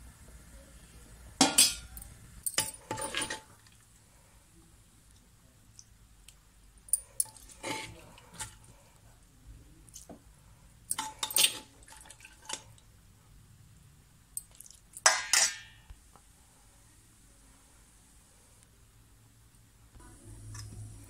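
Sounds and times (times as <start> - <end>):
spoon clinking and scraping pot: 1.4 - 3.5, 6.9 - 8.6, 10.9 - 12.6, 14.4 - 15.8.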